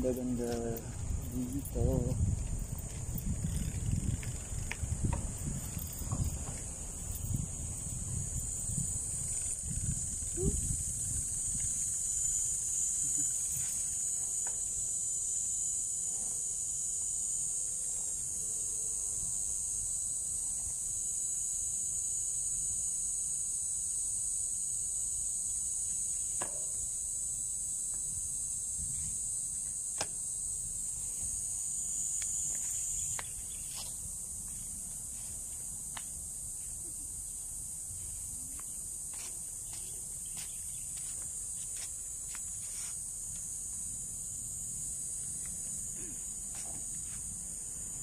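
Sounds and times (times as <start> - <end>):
insects buzzing: 0.0 - 48.0.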